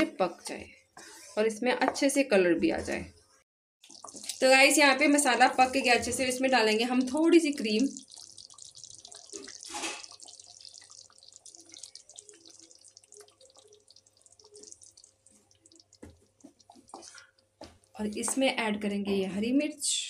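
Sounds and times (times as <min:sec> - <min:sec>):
thick gravy sloshing in a pan: 0:03.8 - 0:18.2.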